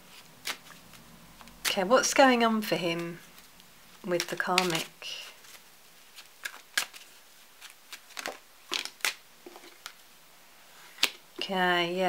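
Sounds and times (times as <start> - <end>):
cards rustling: 0.1 - 10.1
cards snapping: 0.4 - 1.8, 4.1 - 4.9, 6.1 - 10.0.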